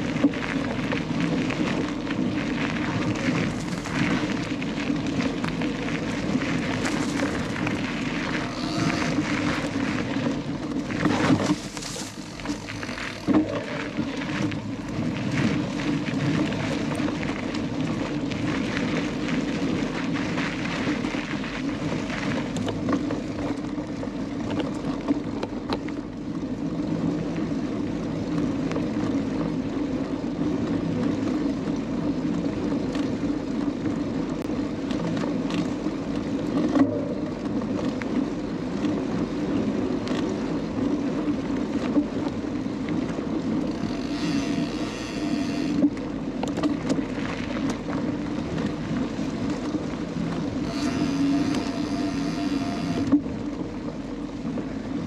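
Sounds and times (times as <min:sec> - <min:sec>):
wind on microphone: 0:00.0 - 0:25.8, 0:27.0 - 0:55.0
bike chain and frame rattle: 0:00.0 - 0:26.0, 0:43.6 - 0:49.6, 0:50.5 - 0:53.2
bike tyres rumbling over dirt: 0:00.0 - 0:55.0.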